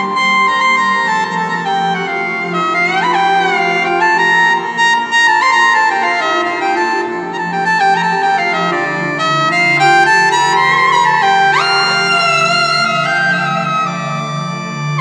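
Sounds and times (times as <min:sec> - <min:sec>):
keyboard melody with pitch slides: 0:00.0 - 0:15.0.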